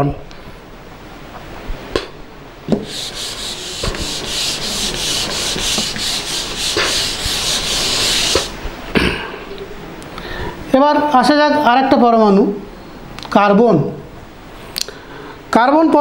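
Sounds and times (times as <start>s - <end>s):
whiteboard being wiped: 2.8s - 8.6s.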